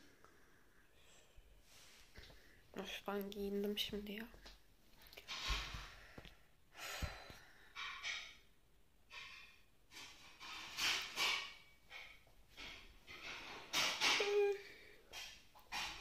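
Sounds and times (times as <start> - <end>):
girl breathing and sighing: 5.6 - 7.8.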